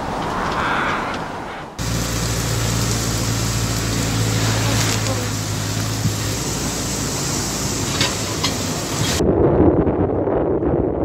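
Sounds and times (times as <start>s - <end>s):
wind and rain rushing: 0.0s - 11.0s
low engine hum: 1.8s - 9.3s.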